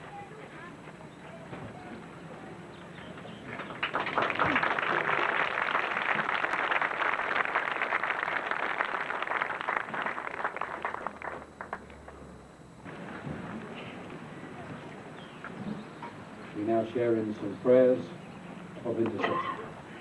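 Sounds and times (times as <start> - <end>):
crowd applauding: 3.3 - 12.2.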